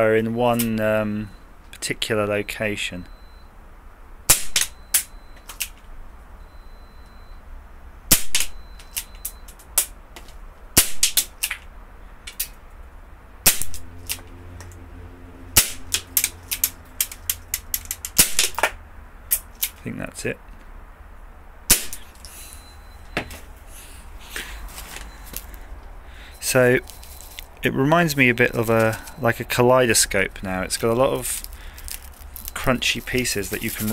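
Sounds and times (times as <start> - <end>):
pellet gun shots: 4.3 - 4.8, 8.1 - 8.6, 10.8 - 11.4, 13.5 - 13.8, 15.6 - 16.0, 18.1 - 18.8, 21.7 - 22.1.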